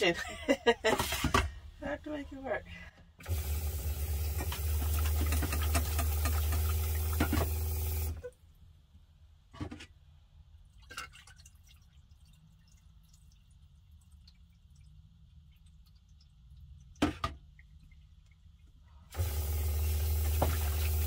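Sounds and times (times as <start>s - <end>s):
faucet running into metal saucepan: 3.3s - 8.2s, 19.2s - 21.0s.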